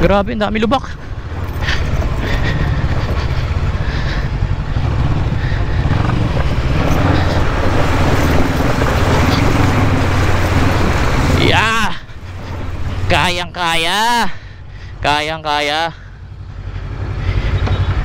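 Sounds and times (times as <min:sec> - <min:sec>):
motorcycle engine running: 0:00.0 - 0:18.0
motorcycle splashing through water: 0:01.2 - 0:13.1.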